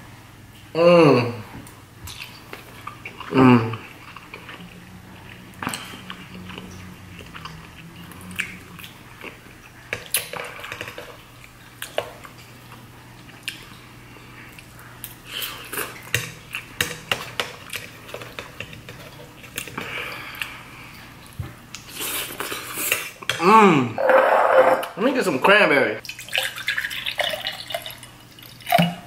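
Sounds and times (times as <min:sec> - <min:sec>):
close-up chewing: 0:02.1 - 0:23.1.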